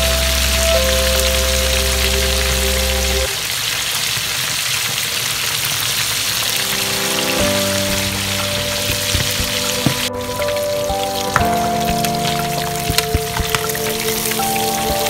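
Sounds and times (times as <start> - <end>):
background music: 0.0 - 3.3, 6.3 - 15.0
fish sizzling in hot oil: 3.3 - 9.8.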